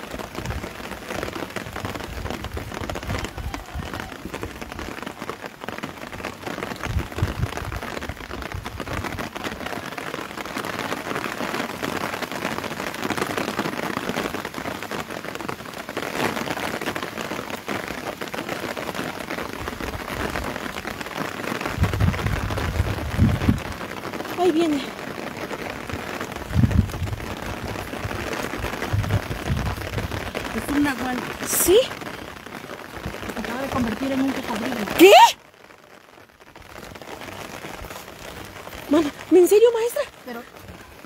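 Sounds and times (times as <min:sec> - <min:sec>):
steady rain falling: 0:00.0 - 0:41.0
low rumbles: 0:25.8 - 0:31.7.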